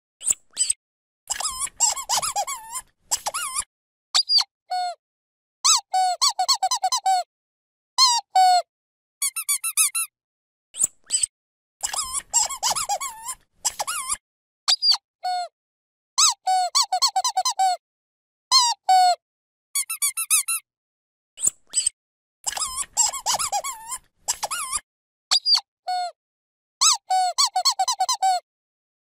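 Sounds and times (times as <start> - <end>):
rubber squeaky toy squeaking: 0.2 - 4.9, 5.7 - 7.3, 8.0 - 8.6, 9.2 - 10.1, 10.8 - 15.5, 16.2 - 17.8, 18.5 - 19.2, 19.8 - 20.6, 21.4 - 26.2, 26.8 - 28.4.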